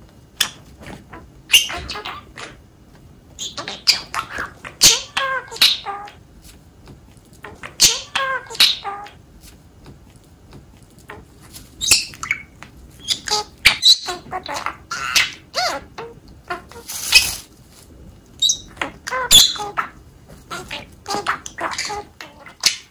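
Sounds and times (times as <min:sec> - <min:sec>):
budgerigar chirping and warbling: 0:00.4 - 0:02.6, 0:03.4 - 0:06.2, 0:07.4 - 0:09.2, 0:11.1 - 0:17.4, 0:18.4 - 0:22.9
budgerigar mimicking speech: 0:01.1 - 0:02.6, 0:03.4 - 0:06.2, 0:07.4 - 0:09.2, 0:11.1 - 0:16.9, 0:18.4 - 0:22.9.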